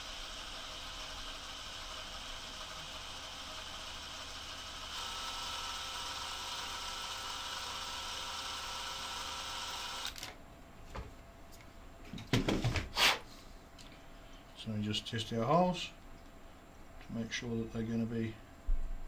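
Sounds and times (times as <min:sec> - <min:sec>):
cordless drill motor running: 0:00.0 - 0:10.4.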